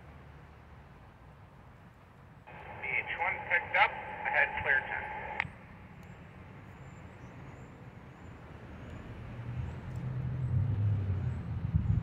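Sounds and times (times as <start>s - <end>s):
diesel locomotive rumble: 2.5s - 5.7s.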